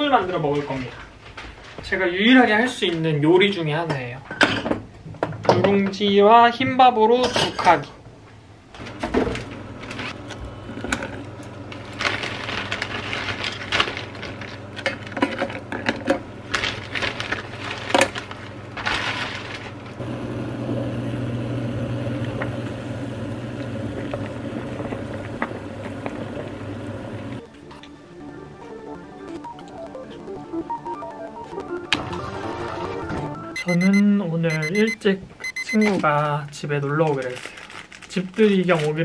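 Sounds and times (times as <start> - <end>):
steady hum of boiling pot: 8.7 - 27.4.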